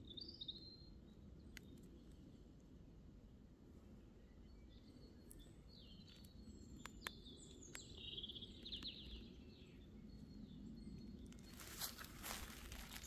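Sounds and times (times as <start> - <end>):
small bird singing with trill: 0.0 - 1.5, 4.4 - 13.0.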